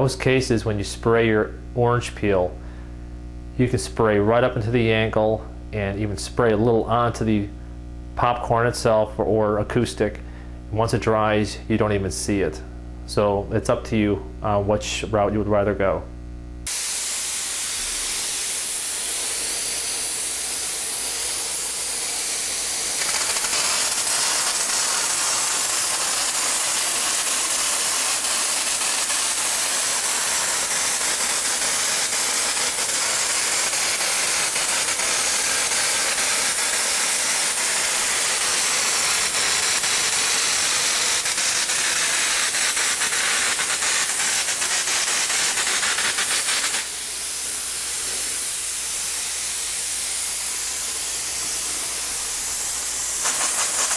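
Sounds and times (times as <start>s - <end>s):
compressed air hissing through spray gun: 16.7s - 53.9s.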